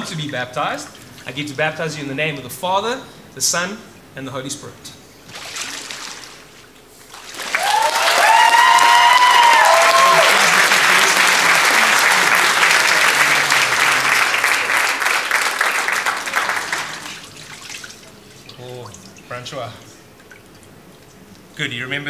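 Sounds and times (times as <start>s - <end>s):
crowd applauding and cheering: 7.3s - 17.4s
high shouted whoops: 7.5s - 12.1s.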